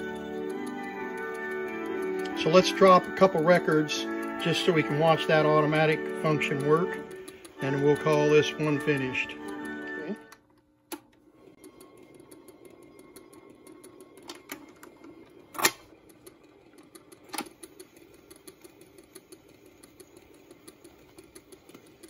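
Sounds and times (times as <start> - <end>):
light mechanical ticks: 0.0 - 9.8, 16.1 - 22.0
record changer whirring: 0.0 - 22.0.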